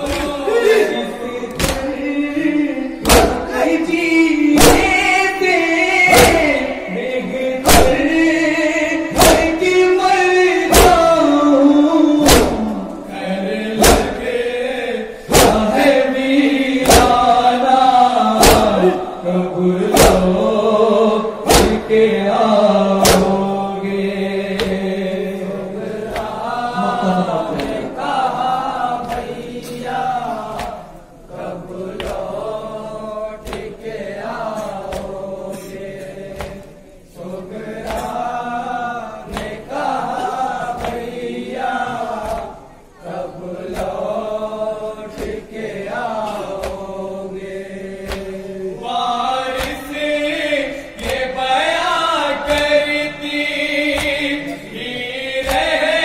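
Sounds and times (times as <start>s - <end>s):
male voices chanting in chorus: 0.0s - 56.0s
hands slapping chests: 1.6s - 1.9s, 3.0s - 3.5s, 6.1s - 6.6s, 9.2s - 9.6s, 13.8s - 14.2s, 15.3s - 15.8s, 16.8s - 17.2s, 21.5s - 21.9s, 23.0s - 23.4s, 31.9s - 32.3s, 33.4s - 33.8s, 34.8s - 35.2s, 36.3s - 36.8s, 40.8s - 41.1s, 48.0s - 48.4s, 49.5s - 50.0s, 51.0s - 51.4s, 52.4s - 52.8s, 53.9s - 54.3s, 55.4s - 55.9s.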